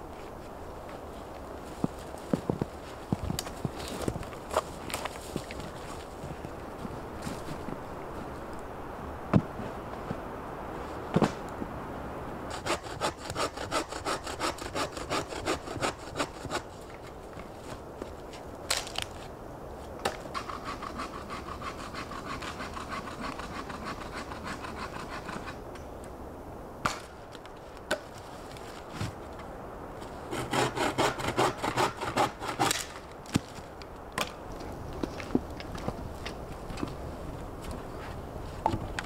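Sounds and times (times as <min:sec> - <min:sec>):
hand saw rasping through wood: 0:12.5 - 0:16.6, 0:20.4 - 0:25.6, 0:30.3 - 0:32.8.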